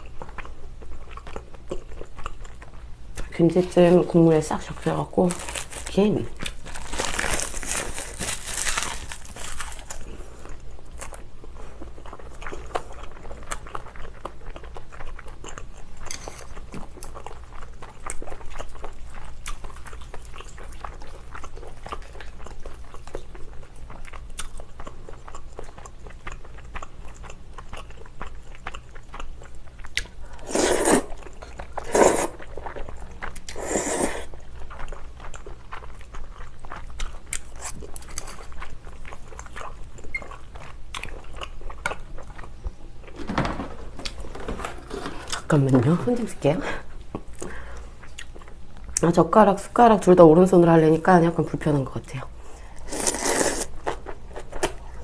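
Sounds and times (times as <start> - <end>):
wet chewing: 5.2 - 42.8
slurping: 30.3 - 31.2, 31.8 - 32.4, 33.5 - 34.3, 52.9 - 53.7.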